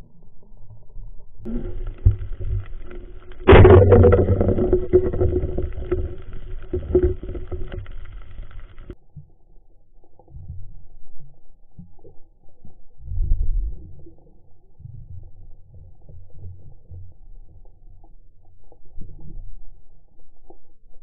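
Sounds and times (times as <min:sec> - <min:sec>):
muffled underwater rumbling: 0:00.0 - 0:21.0.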